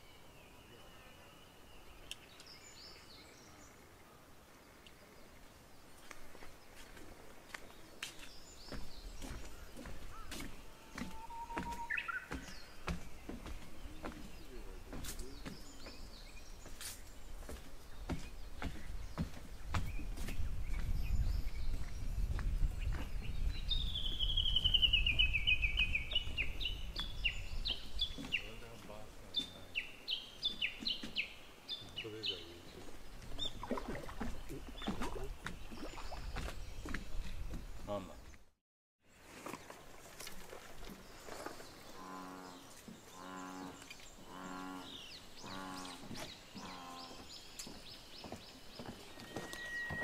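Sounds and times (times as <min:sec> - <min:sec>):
small birds chirping: 0:00.0 - 0:38.5, 0:40.2 - 0:50.0
low animal call: 0:10.1 - 0:12.3.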